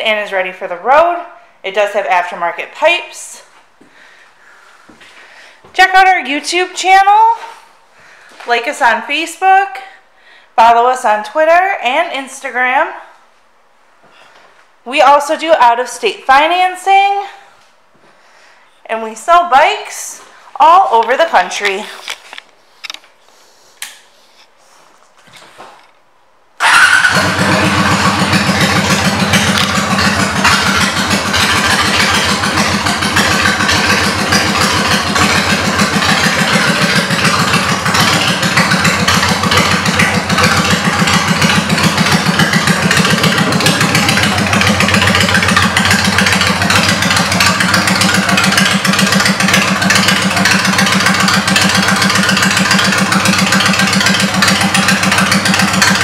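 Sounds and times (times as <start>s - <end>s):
motorcycle engine idling: 26.6s - 56.0s.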